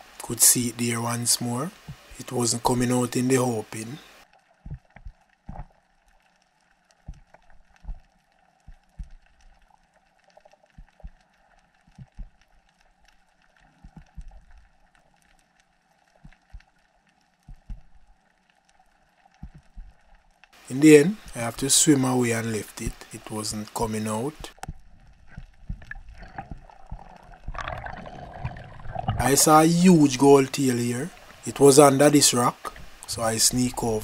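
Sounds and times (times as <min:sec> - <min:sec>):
faint steady hiss: 0:00.0 - 0:34.0
underwater clicks and crackles: 0:01.8 - 0:02.1, 0:04.2 - 0:20.6, 0:22.8 - 0:34.0
soft low knocks: 0:04.6 - 0:05.7.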